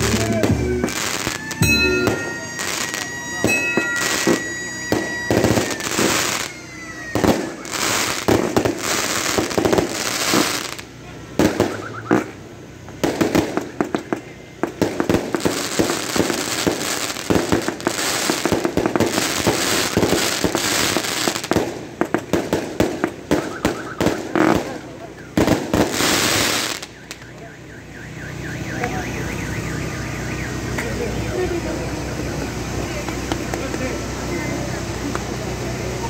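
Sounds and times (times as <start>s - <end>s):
firework shells bursting: 0.0s - 27.2s
firecrackers crackling: 0.0s - 36.0s.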